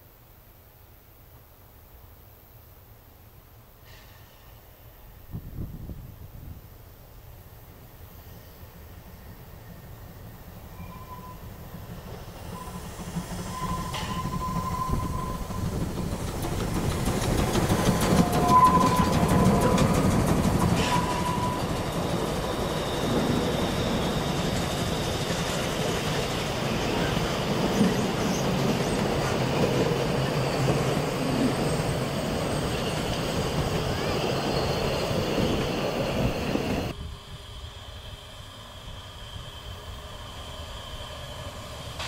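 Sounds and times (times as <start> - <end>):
steam train passing: 3.8 - 42.0
thin high tone: 10.7 - 11.6
wheels clattering on rails: 10.8 - 36.9.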